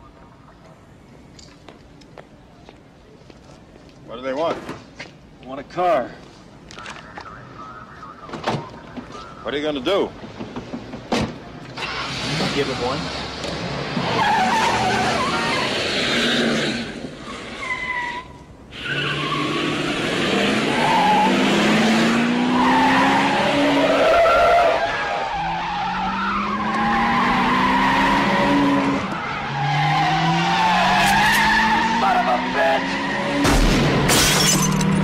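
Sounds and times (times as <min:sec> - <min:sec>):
car engine revving: 0:18.9 - 0:24.1.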